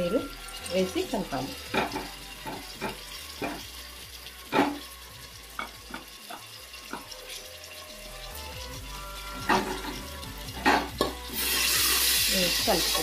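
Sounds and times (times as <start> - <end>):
onions sizzling in oil: 0.0 - 13.0
spoon scraping and knocking pan: 1.7 - 3.7, 4.5 - 4.9, 5.5 - 7.9, 9.3 - 11.8.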